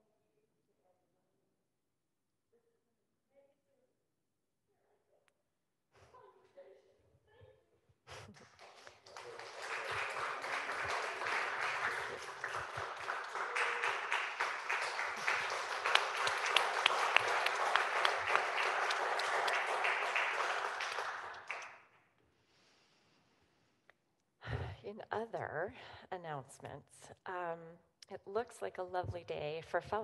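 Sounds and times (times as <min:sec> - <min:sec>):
congregation applauding: 0:08.3 - 0:21.8.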